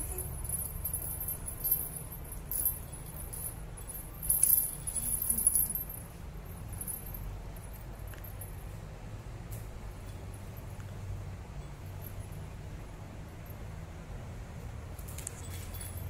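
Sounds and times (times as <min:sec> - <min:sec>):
cat collar bell jingling: 0:00.0 - 0:08.8, 0:11.6 - 0:13.7, 0:15.0 - 0:16.0.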